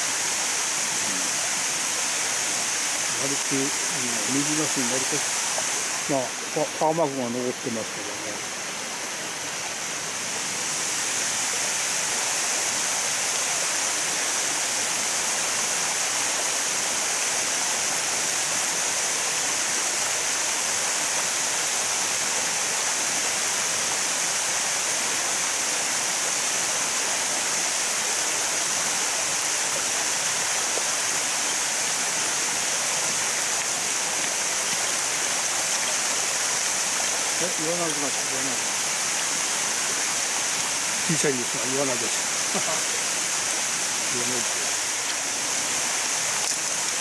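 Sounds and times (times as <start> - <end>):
water pouring over concrete dam: 0.0 - 47.0.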